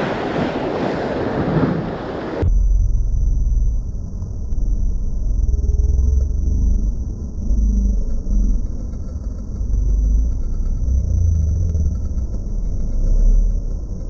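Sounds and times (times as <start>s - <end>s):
surf breaking on shore: 0.0s - 2.4s
wind buffeting microphone: 0.0s - 2.5s.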